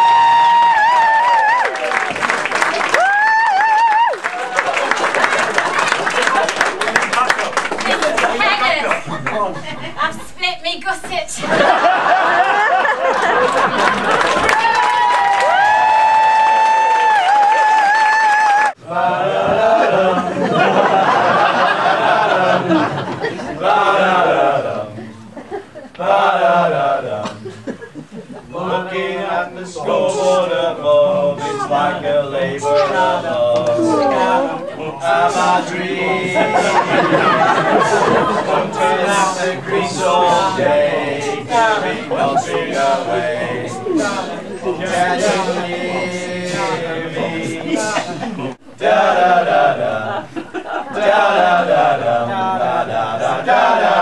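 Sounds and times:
men singing unaccompanied: 0:18.8 - 0:25.1, 0:26.0 - 0:27.5, 0:28.5 - 0:54.0.

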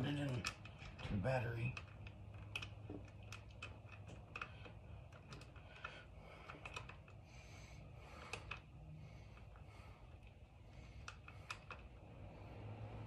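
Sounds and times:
small metal parts clicking: 0:00.0 - 0:07.2.

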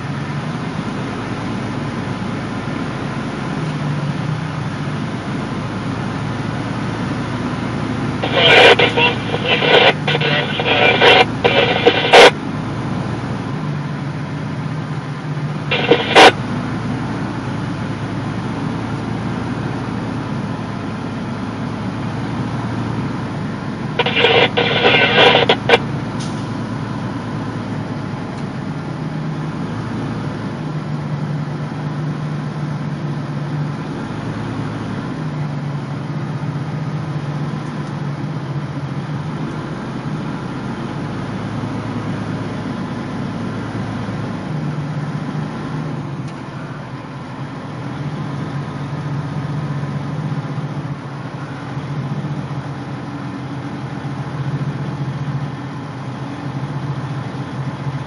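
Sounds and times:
two-way radio crackles: 0:08.2 - 0:12.4, 0:15.7 - 0:16.4, 0:23.9 - 0:25.9.

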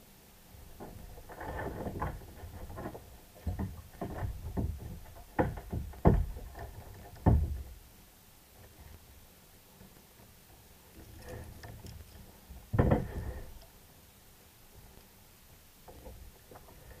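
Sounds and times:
knocks and bumps on kayak: 0:01.7 - 0:07.8, 0:12.6 - 0:13.5.

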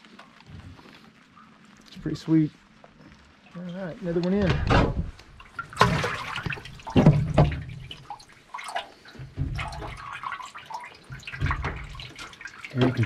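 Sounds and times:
water sloshing and dripping: 0:00.0 - 0:13.0
fish splashing in water: 0:05.3 - 0:13.0.

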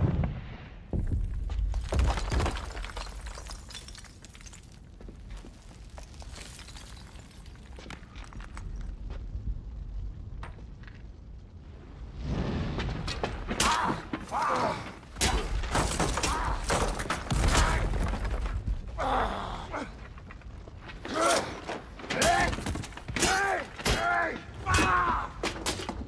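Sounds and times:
falling stone and rubble crashing: 0:00.9 - 0:26.0
deep rumble: 0:08.0 - 0:13.6
man grunting and groaning: 0:13.6 - 0:15.0, 0:19.0 - 0:20.0.

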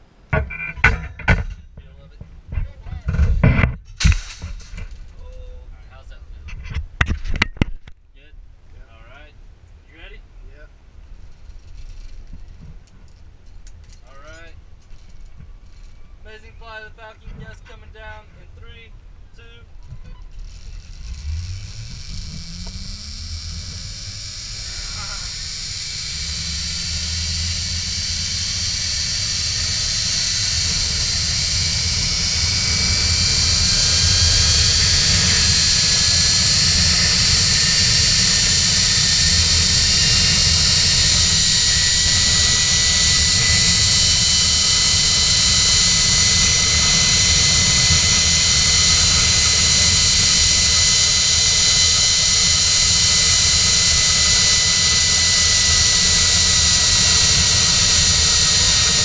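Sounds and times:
zipline pulleys whining on cable: 0:11.2 - 0:12.4, 0:13.8 - 0:16.3, 0:19.4 - 0:59.0
wind buffeting microphone: 0:25.3 - 0:51.1.

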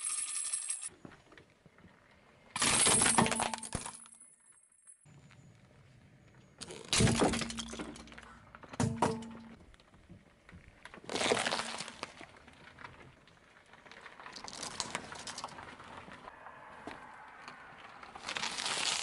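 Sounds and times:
plastic chain links crackling: 0:00.0 - 0:00.9, 0:14.3 - 0:16.0, 0:18.2 - 0:19.0
hard plastic cracking under tyre: 0:10.6 - 0:16.2, 0:17.9 - 0:19.0.

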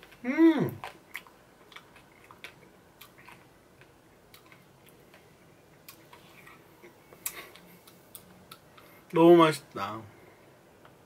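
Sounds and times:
person eating mouth sounds: 0:00.0 - 0:05.2.

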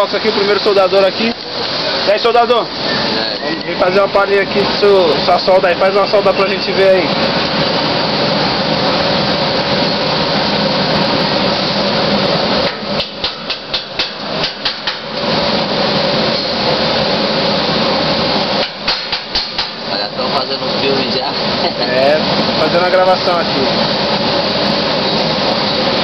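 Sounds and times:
loud workshop noise: 0:00.0 - 0:26.0
sharp metal knocks and clatter: 0:12.6 - 0:15.2, 0:18.6 - 0:19.8.

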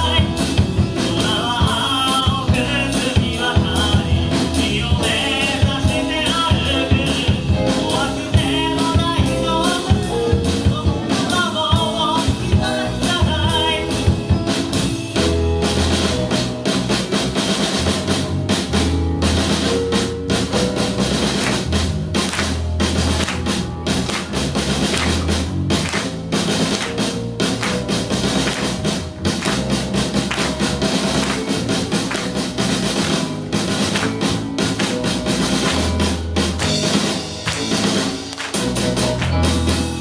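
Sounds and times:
person singing: 0:00.0 - 0:14.2
drums and bass: 0:00.0 - 0:40.0
live rock band playing: 0:00.0 - 0:40.0.

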